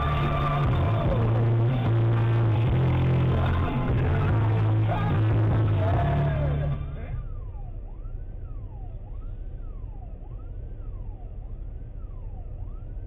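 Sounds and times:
music: 0.0 - 7.2
electronic siren wailing: 0.0 - 13.0
low vehicle rumble: 0.0 - 13.0.

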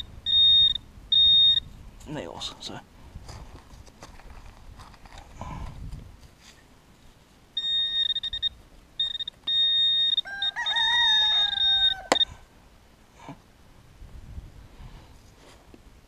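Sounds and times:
high-pitched alarm tone: 0.0 - 1.7, 7.6 - 12.4
rooster crowing: 10.1 - 12.5.

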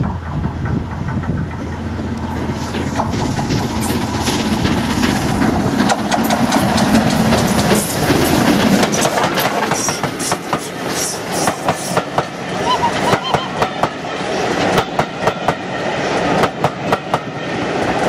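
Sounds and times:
wheels clattering over rails: 0.0 - 12.4
steam locomotive passing: 0.0 - 18.0.

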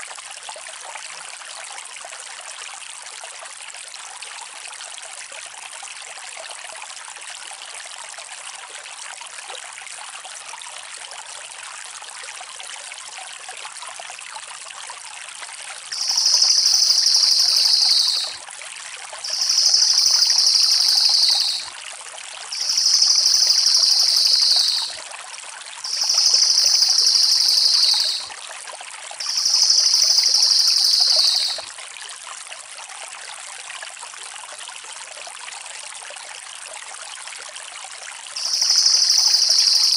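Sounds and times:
background hiss: 15.9 - 18.3, 19.2 - 21.7, 22.5 - 25.0, 25.9 - 28.3, 29.2 - 31.6, 38.4 - 39.9
jay rolling trill calls: 15.9 - 18.3, 19.3 - 21.7, 22.6 - 24.9, 25.9 - 28.2, 29.2 - 31.6, 38.4 - 39.9.

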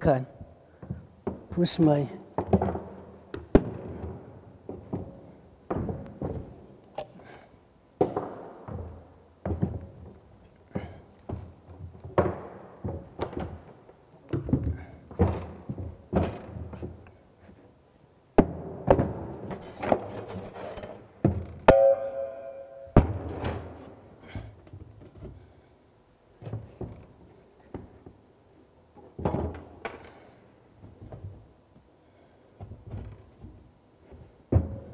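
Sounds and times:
pitched ringing: 21.7 - 23.0.

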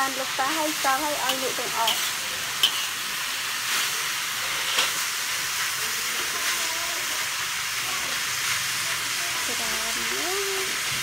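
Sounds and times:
food sizzling in a wok: 0.0 - 11.0
metal spatula clinking on pan: 1.3 - 2.9.

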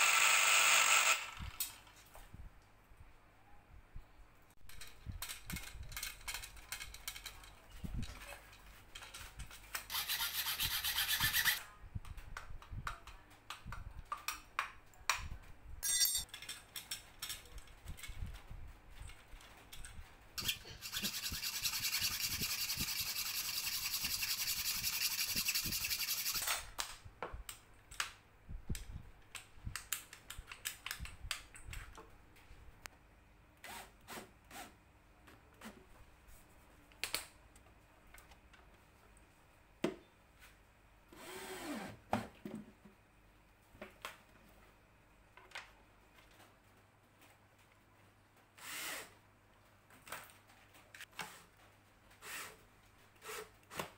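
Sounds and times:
rasping scraping: 9.9 - 11.6.

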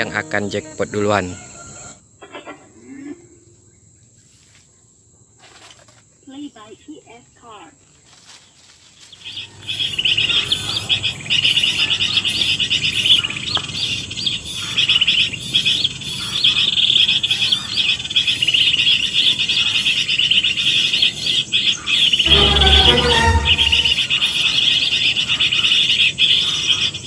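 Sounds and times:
high-pitched bird chirping: 22.2 - 24.2.

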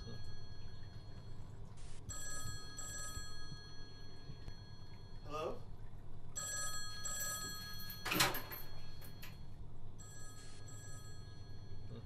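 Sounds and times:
telephone ringing: 2.1 - 5.7, 6.3 - 12.0.

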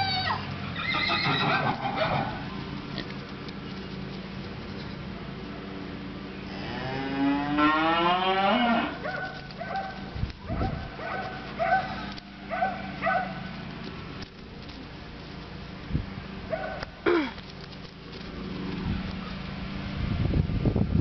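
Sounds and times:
donkey braying: 0.0 - 4.1.

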